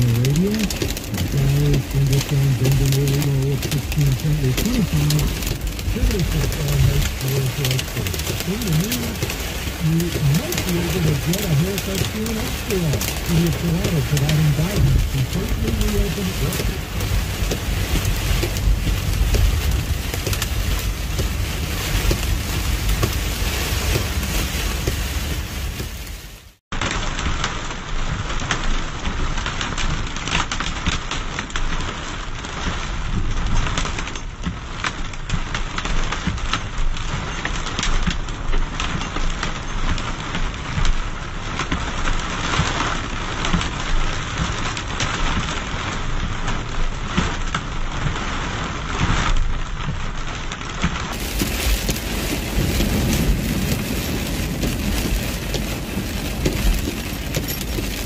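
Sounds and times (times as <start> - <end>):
low rumble: 0.0 - 26.6, 51.1 - 58.0
rain and hail on car roof: 0.0 - 58.0.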